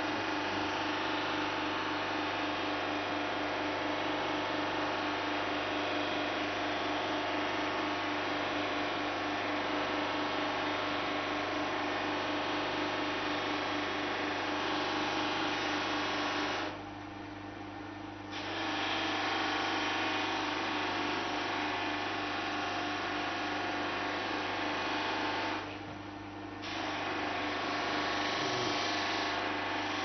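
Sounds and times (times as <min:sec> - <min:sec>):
buffing machine motor hum: 0:00.0 - 0:01.1, 0:27.5 - 0:30.0.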